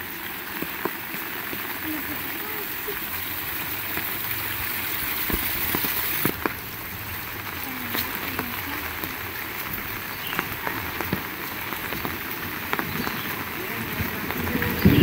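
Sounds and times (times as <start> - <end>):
heavy rain hissing: 0.0 - 15.0
raindrops tapping close by: 0.0 - 15.0.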